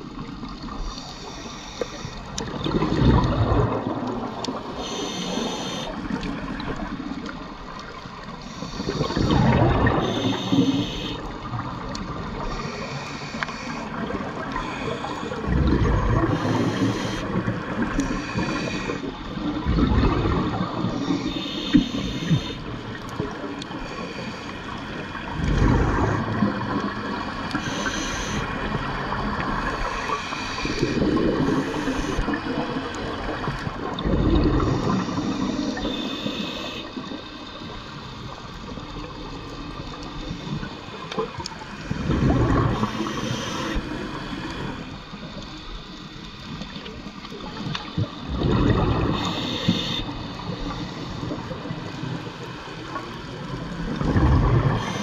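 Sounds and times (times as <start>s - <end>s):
exhaled air bubbling: 0.0s - 24.0s, 24.7s - 37.7s, 38.3s - 55.0s
regulator inhalation hiss: 0.8s - 2.3s, 4.6s - 6.1s, 8.4s - 11.3s, 12.4s - 15.4s, 16.3s - 19.1s, 20.8s - 22.7s, 27.5s - 32.4s, 34.7s - 37.7s, 42.7s - 45.0s, 49.0s - 52.8s, 54.7s - 55.0s.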